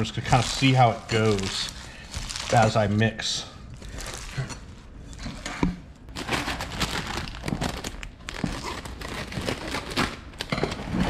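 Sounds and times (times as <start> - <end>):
hands mixing leaves crackling: 0.0 - 4.5.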